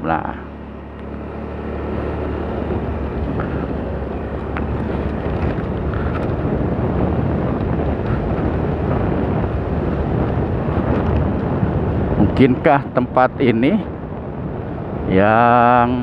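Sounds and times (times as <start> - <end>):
motorcycle engine: 0.0 - 12.2
wind buffeting microphone: 0.6 - 16.0.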